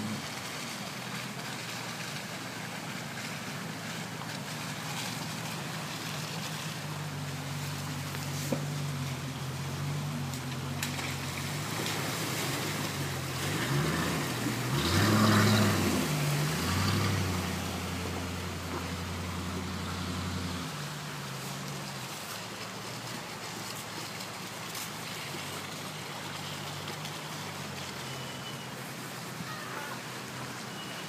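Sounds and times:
rushing river water: 0.0 - 31.0
water surging and splashing: 0.0 - 31.0
car engine revving: 10.8 - 21.4.

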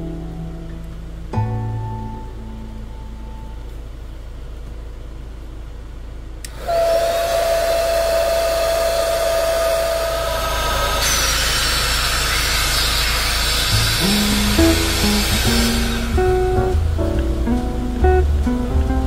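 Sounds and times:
electric air pump whining: 6.5 - 16.6.

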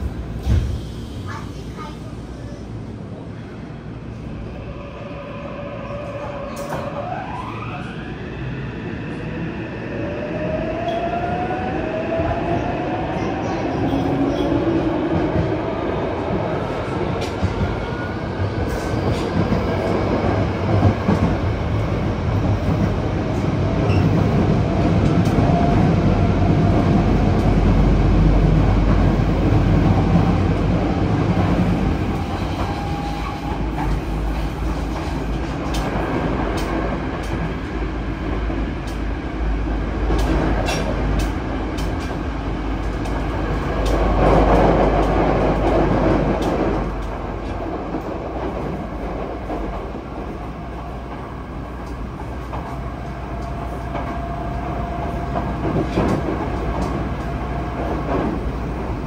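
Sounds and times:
train rumbling: 0.0 - 59.0
rail clicks: 12.4 - 39.1, 39.8 - 59.0.

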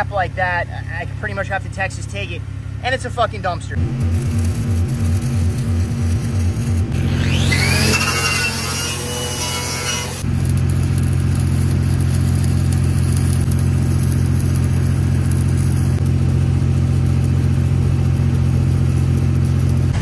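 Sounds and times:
welder engine running: 0.0 - 20.0
sweeping whine: 2.9 - 10.5
welding arc crackling: 3.0 - 20.0.

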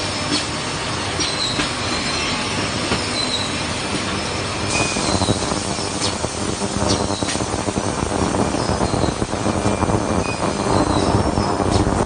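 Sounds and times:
industrial machinery noise: 0.0 - 12.0
high metallic squeals: 1.2 - 6.0, 8.5 - 11.8.

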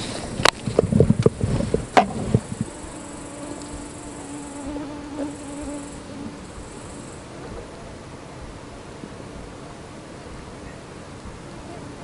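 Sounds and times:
flying insect buzzing: 1.3 - 7.3.

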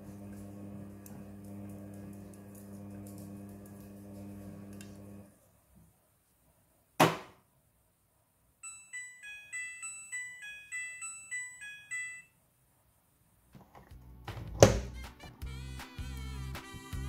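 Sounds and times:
washing machine door clunk: 14.3 - 14.9.

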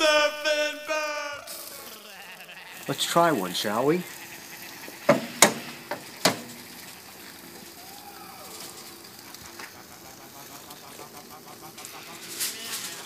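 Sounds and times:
skewers clicking on grill grate: 4.9 - 13.0.

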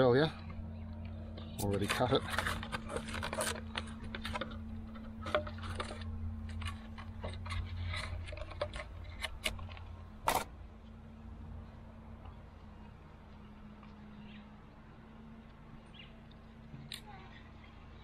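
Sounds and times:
plastic packaging crackling: 1.6 - 10.5.

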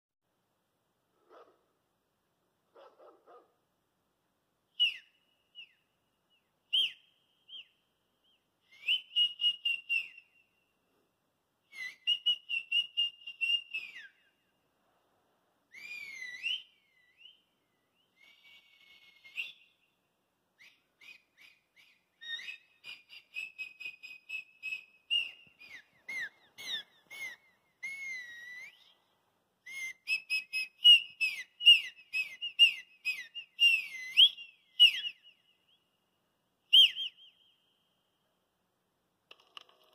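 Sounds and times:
person whistling trills: 8.7 - 10.4, 11.7 - 14.2, 15.8 - 17.4, 18.0 - 19.7, 20.6 - 29.0, 29.7 - 35.2.

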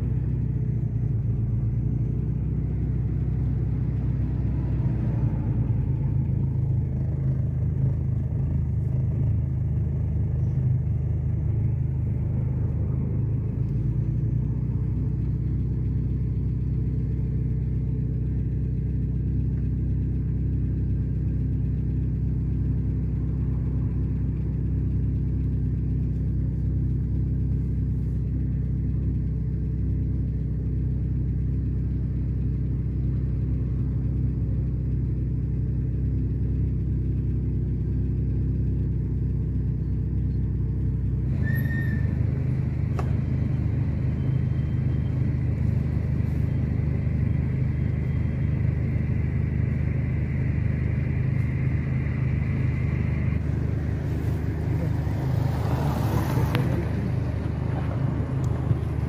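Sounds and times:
car engine hum: 0.0 - 59.0.

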